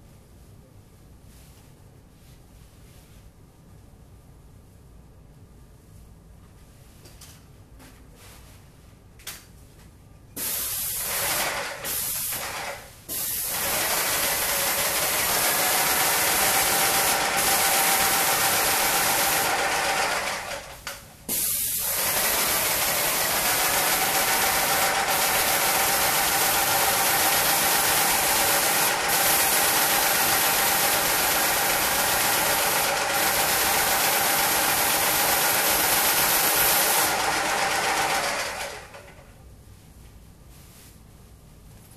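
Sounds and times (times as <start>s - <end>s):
paint sprayer hissing: 10.4s - 20.4s, 21.3s - 38.7s.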